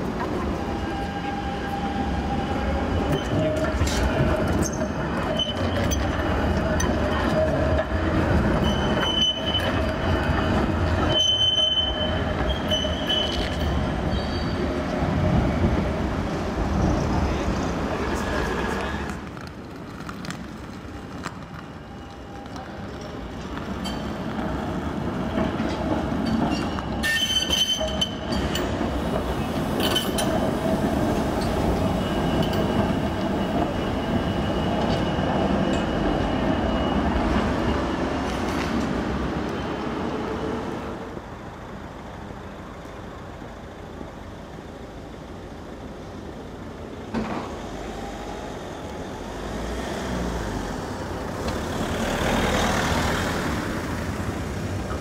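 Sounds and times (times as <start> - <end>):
tram wheels rumbling over rails: 0.0 - 55.0
high-pitched wheel squeals: 4.6 - 6.2, 8.5 - 14.7, 26.2 - 28.4.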